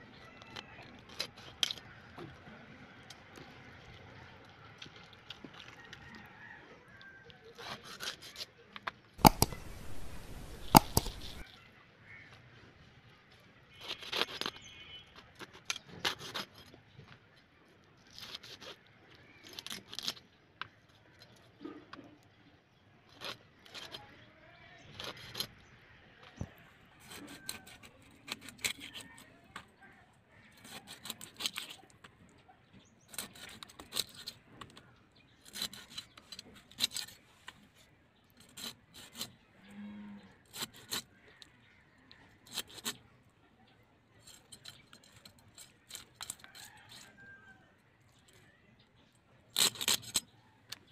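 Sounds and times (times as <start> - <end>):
fish being cut on a blade: 7.5 - 8.6, 9.2 - 11.4, 27.0 - 29.7, 30.4 - 31.9, 33.1 - 34.4, 35.4 - 37.2, 38.4 - 39.4, 40.5 - 41.5, 42.4 - 43.0, 49.6 - 50.3
rasping with sharp clicks: 9.2 - 11.4, 33.1 - 39.5, 40.4 - 43.1, 49.5 - 50.9.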